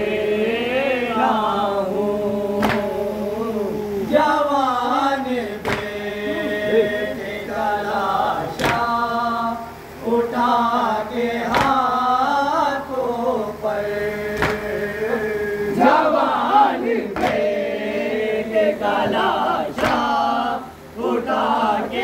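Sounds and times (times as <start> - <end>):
men chanting in unison: 0.0 - 22.0
chest-beating slaps: 2.6 - 3.0, 5.6 - 6.0, 8.5 - 8.9, 11.5 - 11.9, 14.3 - 14.8, 17.1 - 17.6, 19.8 - 20.1.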